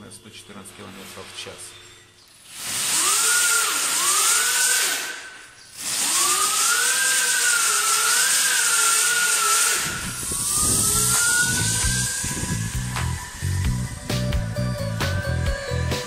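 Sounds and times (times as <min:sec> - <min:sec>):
electric motor whining: 0:00.0 - 0:16.0
background music with beat: 0:11.8 - 0:16.0.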